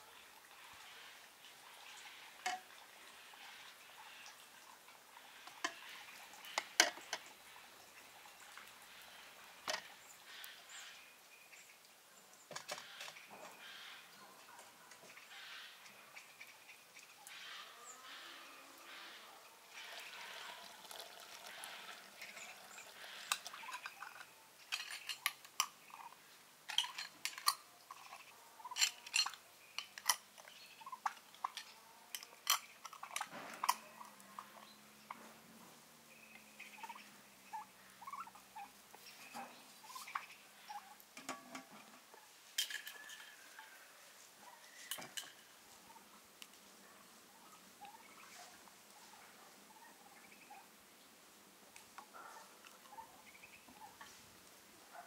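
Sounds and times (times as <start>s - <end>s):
glass jars and metal lids clinking: 23.3s - 25.8s, 26.7s - 27.6s, 28.7s - 30.6s, 31.4s - 34.0s, 42.6s - 43.4s, 44.8s - 45.4s.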